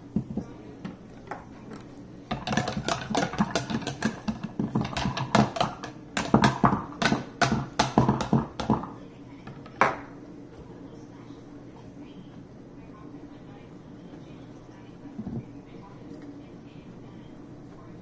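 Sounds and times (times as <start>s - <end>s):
whisk scraping plastic bowl: 2.3s - 6.7s.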